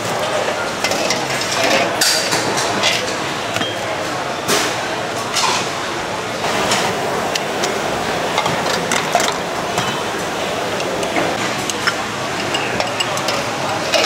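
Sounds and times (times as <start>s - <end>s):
busy food market din: 0.0s - 14.0s
metal utensils and dishes clinking: 0.8s - 3.8s, 10.7s - 14.0s.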